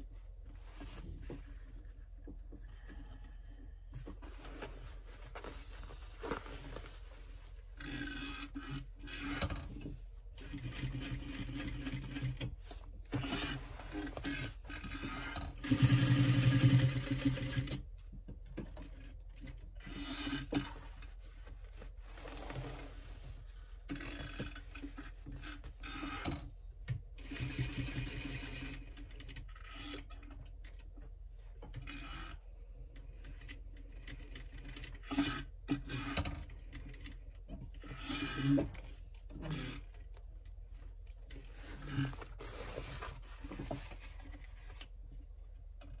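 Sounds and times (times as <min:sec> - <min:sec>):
sewing machine stitching: 0:10.4 - 0:17.8, 0:27.2 - 0:30.4, 0:33.4 - 0:37.1.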